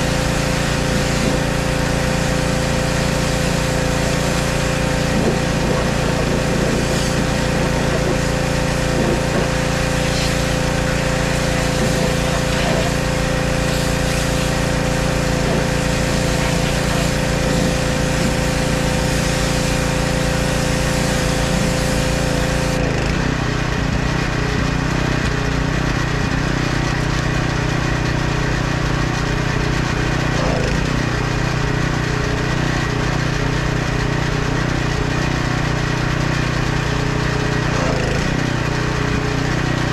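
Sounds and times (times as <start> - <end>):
high-pressure spray hiss: 0.0 - 22.8
pressure washer motor drone: 0.0 - 39.9.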